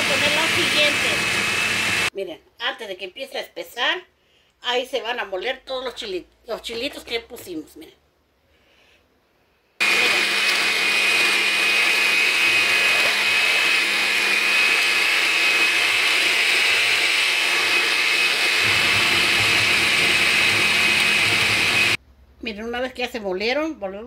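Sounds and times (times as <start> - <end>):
blender grinding: 0.0 - 2.1, 9.8 - 22.0.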